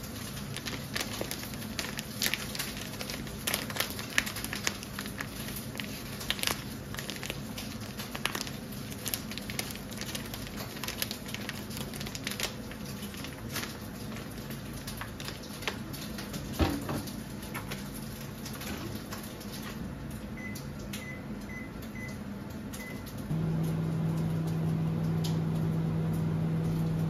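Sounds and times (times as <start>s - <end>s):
plastic pouch tearing: 0.0s - 15.8s
plastic pouch crinkling: 0.0s - 19.6s.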